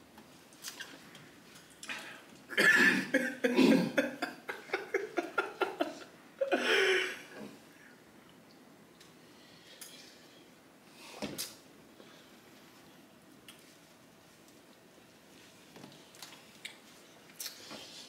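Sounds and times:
man coughing: 2.5 - 4.3, 6.4 - 7.4
man chuckling: 2.9 - 7.5.

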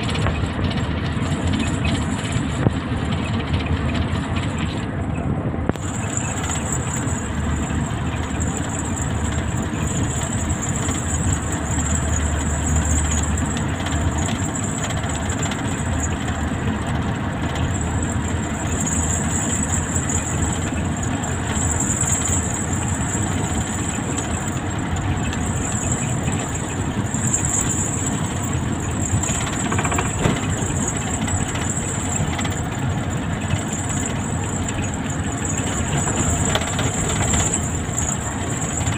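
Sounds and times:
diesel engine running: 0.0 - 38.9
road noise: 0.0 - 38.9.

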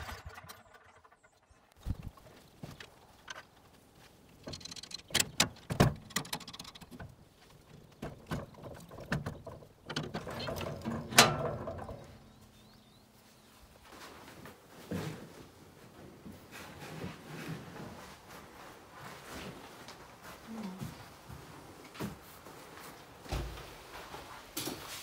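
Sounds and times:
metal knocks and clanks: 4.4 - 12.8.

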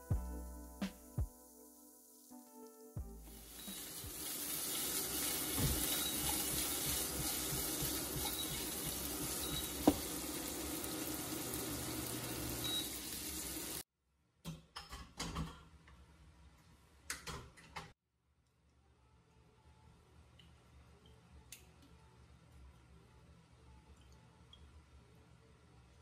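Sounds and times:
meat sizzling in a frying pan: 1.5 - 13.8.

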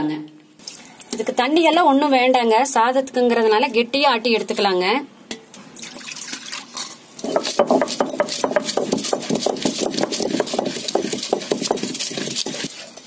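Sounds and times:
stone scraping against stone: 7.2 - 13.0.

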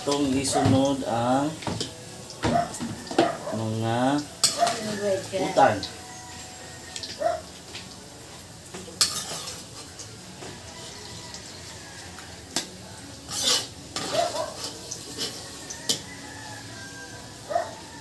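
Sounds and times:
metal ladle scraping a wok: 4.4 - 5.1, 9.0 - 10.0, 12.5 - 16.4.

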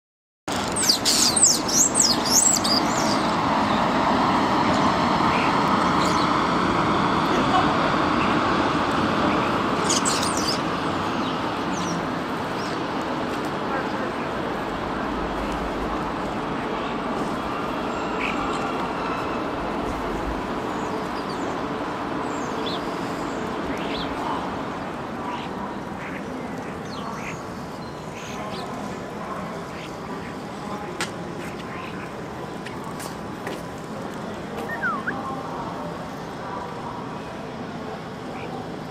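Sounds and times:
city traffic hum: 0.5 - 38.9
starlings whistling calls: 0.7 - 3.8, 9.3 - 12.8, 34.6 - 35.3.

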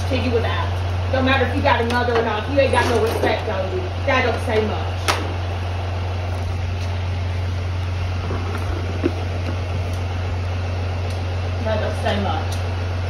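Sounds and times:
vehicle engine idling: 3.4 - 13.0.

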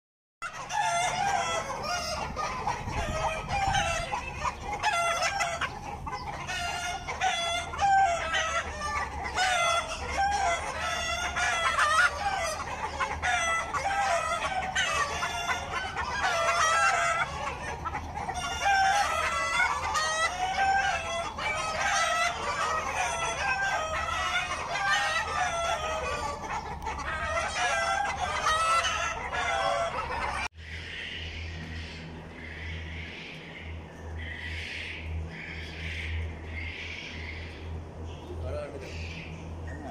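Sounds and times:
rooster crowing: 0.4 - 4.2, 6.6 - 17.6, 18.3 - 26.5, 27.1 - 30.5
chickens clucking: 0.4 - 39.9.

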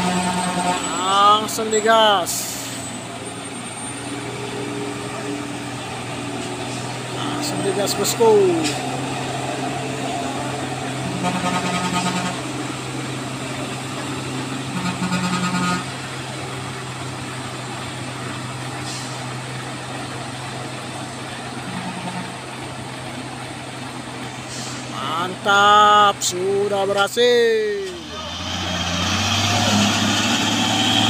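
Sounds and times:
vehicle horn: 0.0 - 1.1, 11.0 - 12.6, 14.7 - 16.0, 21.6 - 22.4
diesel truck engine droning: 0.0 - 31.0.

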